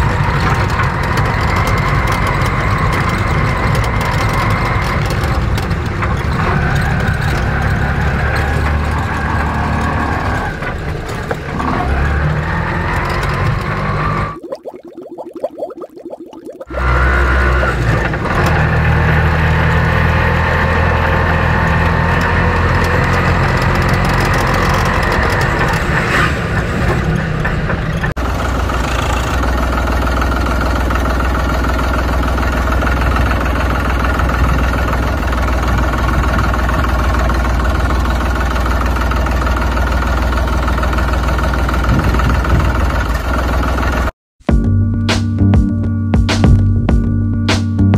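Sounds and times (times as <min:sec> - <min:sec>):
engine idling: 0:17.4 - 0:44.1.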